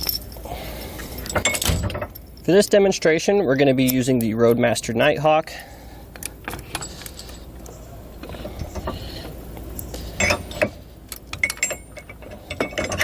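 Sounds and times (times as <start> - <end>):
steel clinking and clanking: 0.0 - 2.6, 6.2 - 9.4, 10.0 - 13.0.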